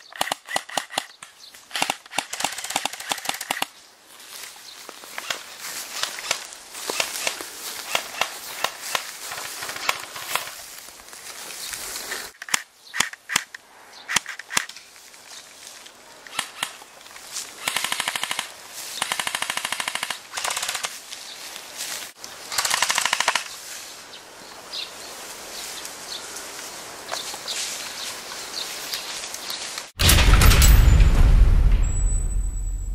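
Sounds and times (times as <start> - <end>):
airsoft rifle full-auto bursts: 17.6 - 20.9, 22.5 - 23.5.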